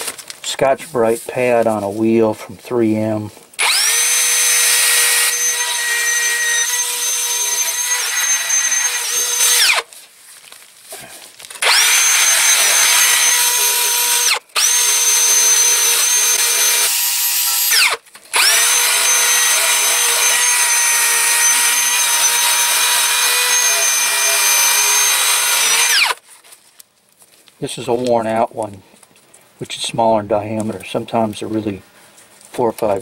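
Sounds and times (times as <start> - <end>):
cordless drill whining: 3.6 - 9.9, 11.6 - 26.2.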